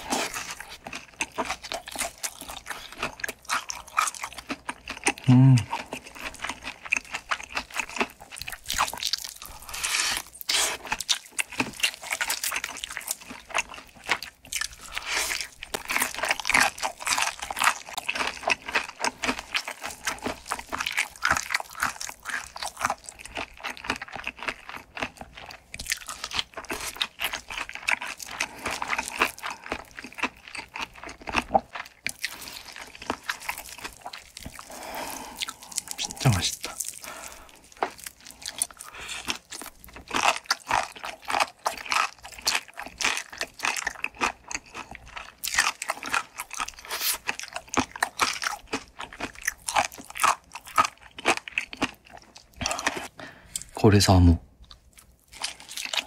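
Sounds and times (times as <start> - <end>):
crunchy bites: 0.0 - 53.7
wet chewing: 0.0 - 53.8, 54.6 - 56.0.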